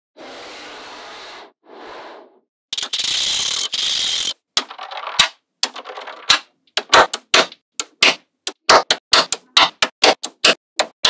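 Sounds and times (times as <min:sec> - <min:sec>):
magnetic balls clicking together: 0:02.8 - 0:11.0.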